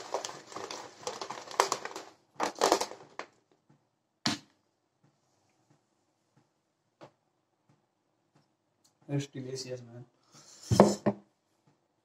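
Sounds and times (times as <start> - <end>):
shaker bottle rattling and sloshing: 0.0 - 3.2.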